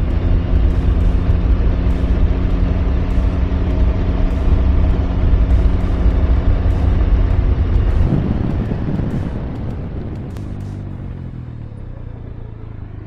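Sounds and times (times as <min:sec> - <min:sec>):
wind rumble on microphone: 0:00.0 - 0:11.8
motorcycle engine cruising: 0:00.0 - 0:13.0.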